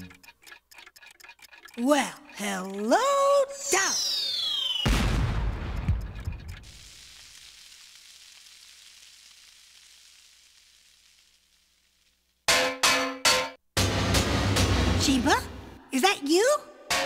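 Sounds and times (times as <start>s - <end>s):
descending whistle: 3.6s - 5.0s
debris crackle: 4.3s - 12.5s
loud crash boom: 4.8s - 6.5s, 13.8s - 15.6s.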